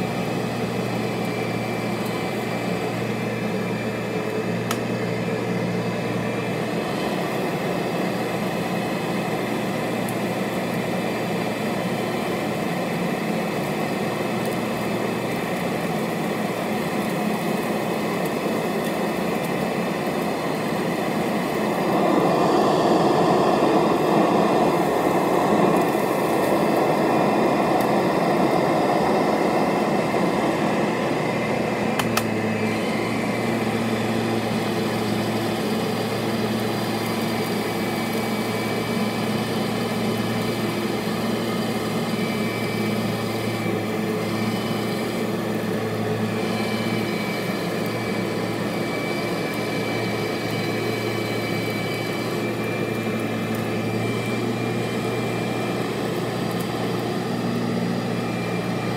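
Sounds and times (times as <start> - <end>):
vacuum cleaner running on carpet: 0.0 - 58.9
vacuum cleaner click: 4.3 - 5.2, 31.3 - 33.4.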